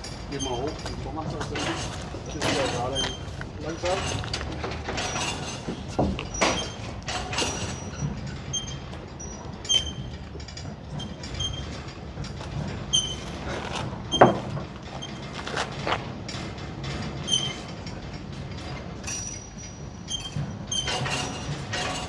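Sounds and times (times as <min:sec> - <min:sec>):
metal knocks and clanks: 0:00.0 - 0:22.0
short high squeaks: 0:01.7 - 0:03.3.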